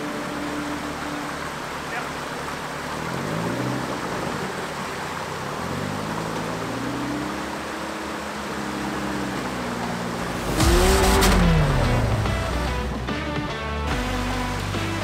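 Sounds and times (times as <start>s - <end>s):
rushing water: 0.0s - 15.0s
pickup engine revving: 2.6s - 13.0s.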